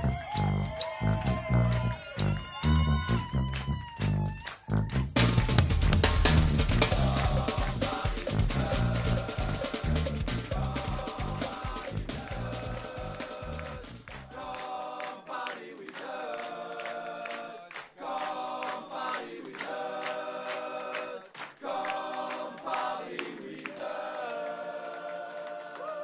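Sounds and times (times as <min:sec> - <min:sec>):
group of voices singing: 0:06.7 - 0:26.0.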